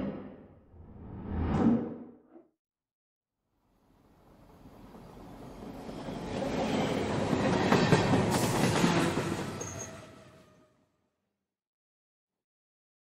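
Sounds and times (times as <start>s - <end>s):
train rumbling past: 4.2s - 10.8s.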